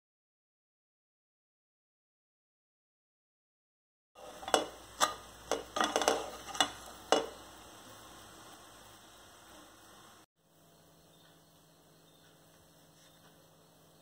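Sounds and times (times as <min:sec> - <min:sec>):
wooden spatula knocking on frying pan: 0:04.2 - 0:07.5
food cooking hiss: 0:04.2 - 0:10.3.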